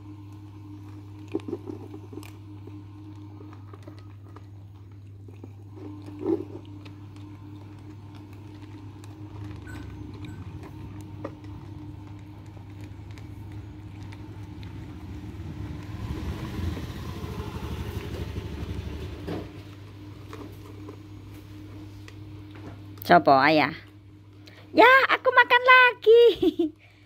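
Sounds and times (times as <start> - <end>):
kittens crunching cat snack: 0.0 - 23.0
steady low hum: 0.0 - 27.0.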